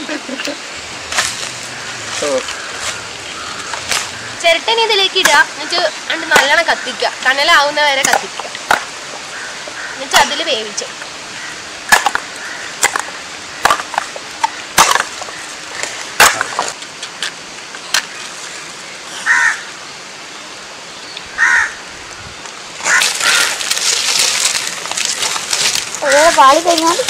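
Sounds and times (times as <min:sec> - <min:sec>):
dry leaves rustling: 0:00.1 - 0:17.0, 0:21.4 - 0:27.0
crow cawing: 0:01.6 - 0:04.5, 0:06.4 - 0:07.2, 0:09.2 - 0:10.5, 0:11.3 - 0:13.8, 0:19.2 - 0:19.8, 0:21.3 - 0:21.9, 0:22.8 - 0:27.0
coconut shells knocking: 0:05.2 - 0:06.7, 0:07.9 - 0:10.4, 0:11.9 - 0:16.8, 0:22.8 - 0:27.0.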